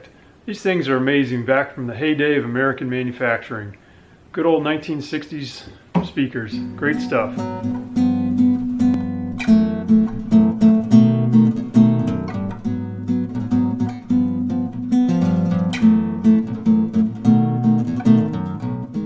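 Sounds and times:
acoustic guitar playing: 6.1s - 19.0s.

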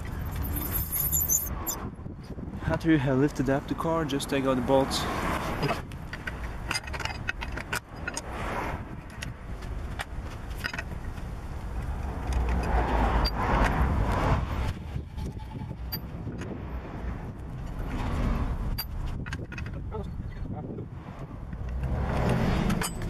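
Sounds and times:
wrench clicking on wheel bolts: 5.6s - 8.3s, 18.7s - 19.8s, 21.5s - 23.0s.

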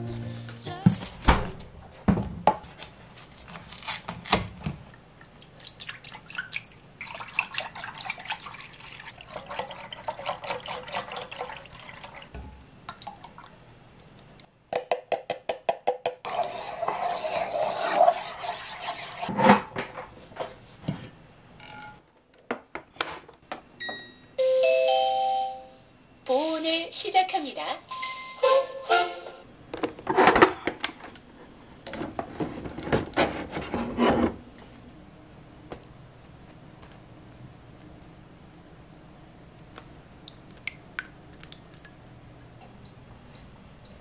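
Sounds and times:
liquid pouring into a pot: 6.4s - 12.3s.

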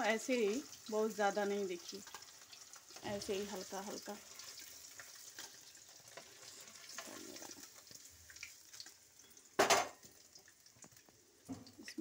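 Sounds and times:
oil sizzling faintly: 0.0s - 12.0s.

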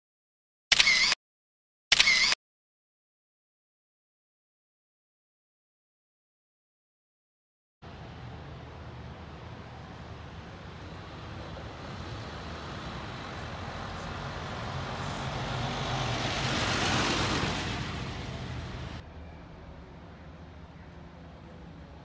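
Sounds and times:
street vehicle passing by: 7.8s - 22.0s.

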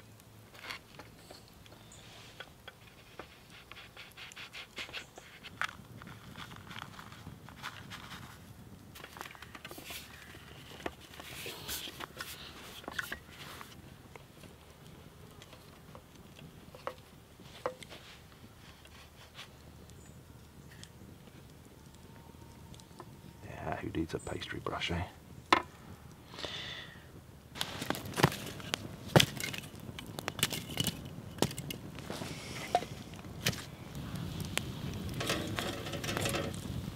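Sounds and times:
firewood knocking and clattering: 15.4s - 18.1s, 25.4s - 25.8s, 27.6s - 33.7s, 34.6s - 36.9s.

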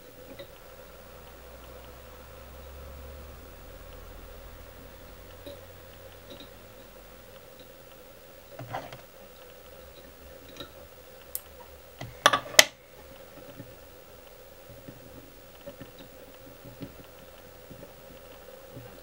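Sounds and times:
faint steady hum: 0.0s - 19.0s
tools clicking and tapping: 10.0s - 19.0s.

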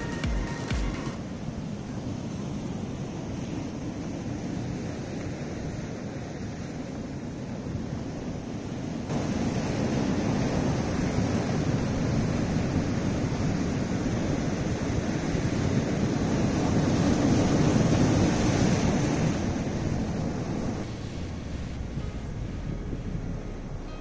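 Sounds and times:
surf breaking on rocky shore: 9.0s - 24.0s.

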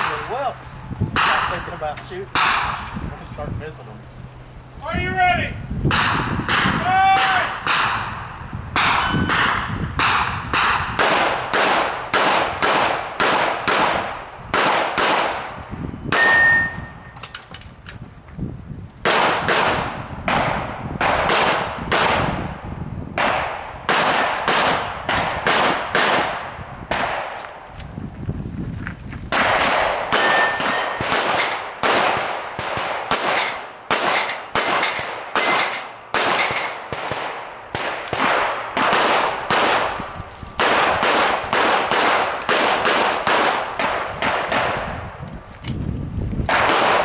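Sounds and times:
rapid pistol fire: 7.6s - 8.2s, 8.8s - 15.5s, 19.0s - 22.4s, 23.2s - 27.4s, 29.3s - 40.0s, 40.6s - 44.9s, 46.5s - 47.0s.

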